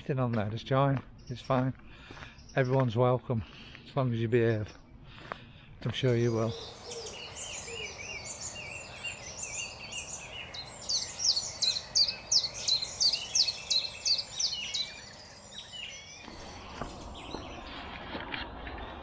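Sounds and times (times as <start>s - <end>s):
songbird warbling: 6.2s - 18.1s
bird downward-sweeping notes: 6.3s - 19.0s.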